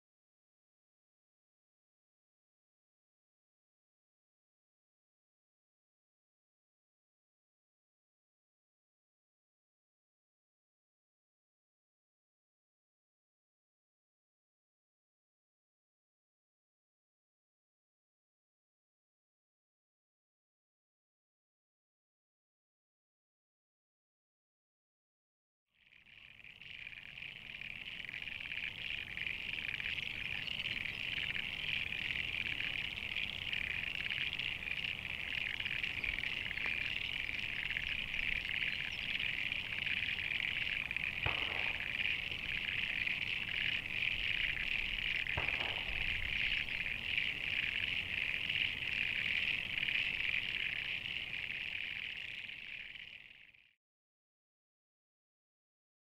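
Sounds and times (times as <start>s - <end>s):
chorus of frogs trilling: 25.8s - 53.7s.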